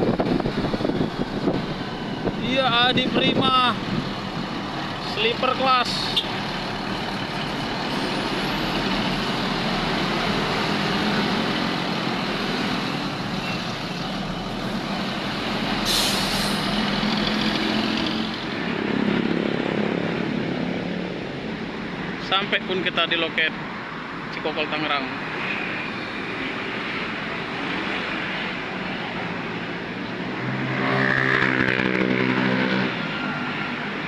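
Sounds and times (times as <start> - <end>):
bus and traffic road noise: 0.0 - 34.0
bus air brakes hiss: 15.8 - 16.7.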